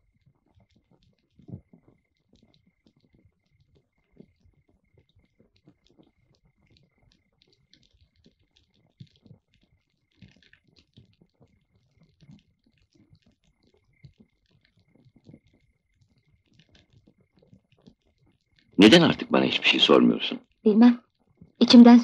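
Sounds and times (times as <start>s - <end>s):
faint clicks and crackle: 0.0s - 22.0s.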